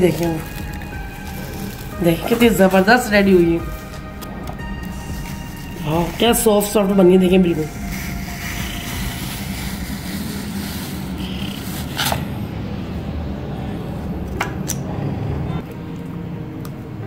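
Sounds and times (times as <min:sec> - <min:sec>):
steady low rumble: 0:00.0 - 0:14.3
metal scoop scraping ice cream: 0:04.6 - 0:12.5.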